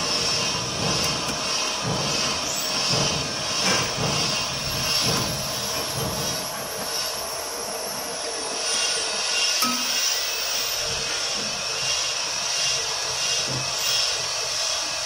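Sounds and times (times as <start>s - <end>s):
machinery hum and hiss: 0.0s - 15.0s
metal tooling knocks: 9.6s - 10.3s.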